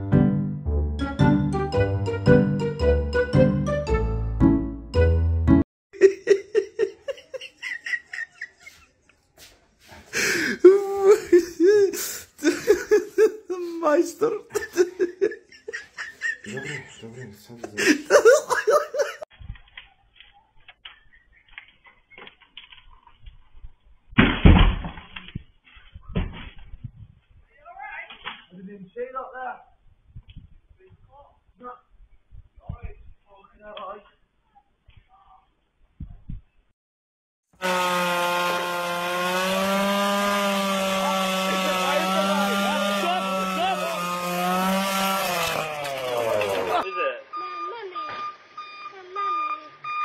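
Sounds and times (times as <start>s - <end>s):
chainsaw engine revving: 37.6s - 46.8s.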